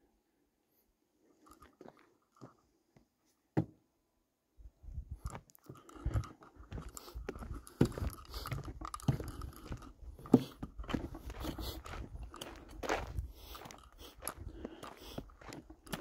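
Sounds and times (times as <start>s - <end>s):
footsteps crunching on gravel: 6.0s - 16.0s.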